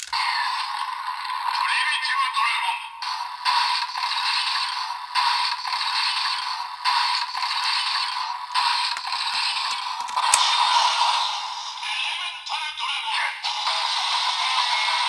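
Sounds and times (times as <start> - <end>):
sharp plastic click: 10.0 - 10.5.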